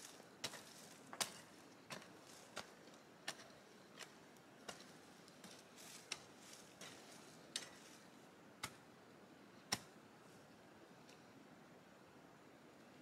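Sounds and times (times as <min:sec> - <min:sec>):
light rustling: 0:00.0 - 0:08.1.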